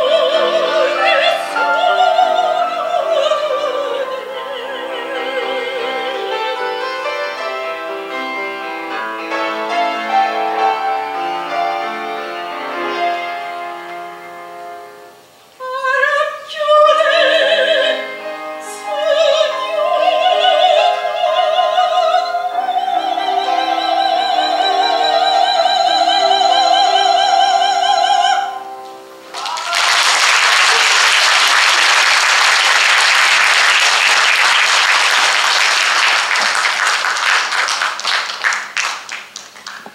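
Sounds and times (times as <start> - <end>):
soprano singing with vibrato: 0.0 - 7.6, 15.6 - 29.7
grand piano: 0.0 - 39.9
audience applauding: 29.3 - 39.9.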